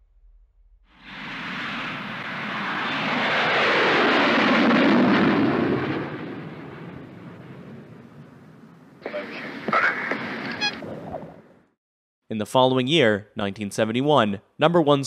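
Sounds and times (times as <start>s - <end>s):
jet engine roaring: 1.0s - 11.4s.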